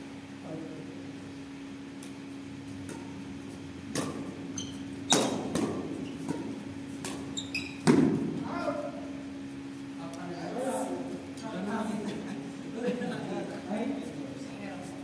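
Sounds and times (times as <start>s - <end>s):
steady low hum: 0.0s - 15.0s
court shoes squeaking: 2.7s - 8.2s
rackets hitting shuttlecock: 2.8s - 3.3s, 3.9s - 8.4s.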